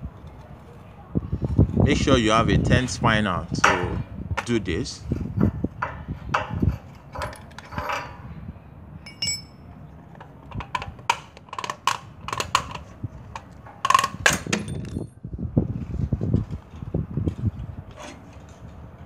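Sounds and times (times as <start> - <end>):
spanner clinking on metal: 5.2 - 8.3, 9.0 - 15.2
metallic ping: 9.0 - 9.7.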